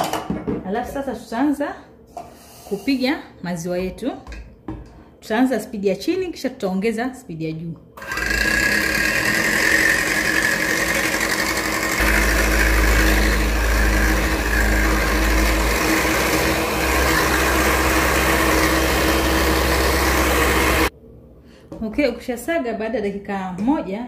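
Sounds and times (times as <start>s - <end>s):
electric hand mixer whipping cream: 8.0s - 20.9s.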